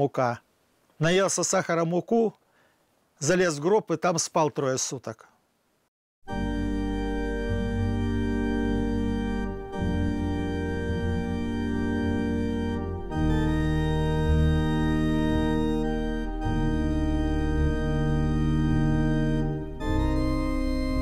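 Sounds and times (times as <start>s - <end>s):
slow held chords music: 6.3s - 21.0s.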